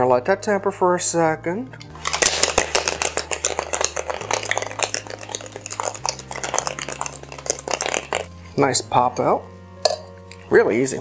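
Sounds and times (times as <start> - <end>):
ice rattling in cocktail shaker: 1.9 - 8.4.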